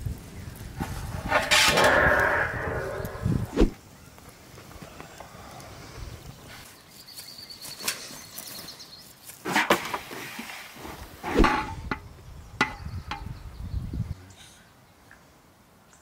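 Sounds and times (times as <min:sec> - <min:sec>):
metal skimmer scraping metal pot: 0:01.2 - 0:03.1.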